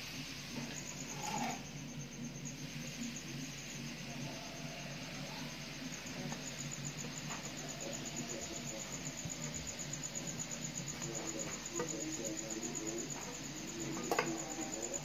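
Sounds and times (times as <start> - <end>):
rice hissing in hot wok: 0.0 - 15.0.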